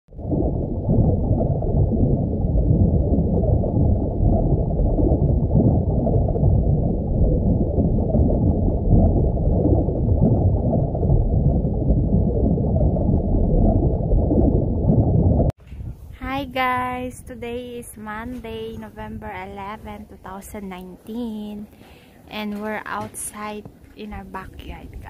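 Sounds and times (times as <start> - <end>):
deep muffled underwater rumble: 0.1 - 17.4.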